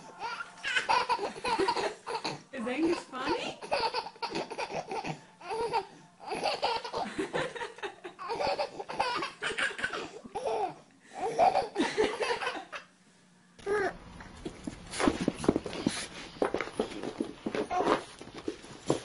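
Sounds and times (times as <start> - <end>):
baby laughing: 0.2 - 12.9.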